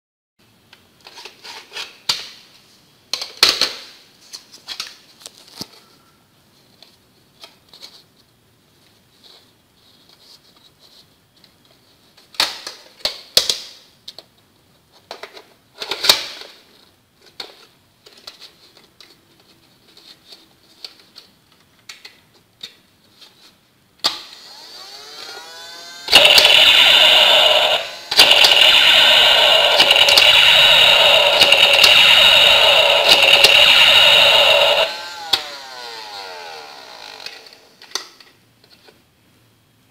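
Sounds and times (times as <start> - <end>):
toy gun motor whir: 24.2 - 37.8
electronic shooting sound effects: 26.1 - 36.9.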